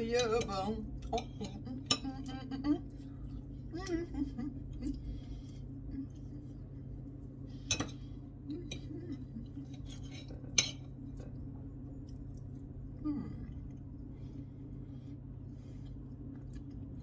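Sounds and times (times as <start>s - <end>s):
steady low hum: 0.0s - 17.0s
knife and fork clinking on plate: 9.6s - 10.9s.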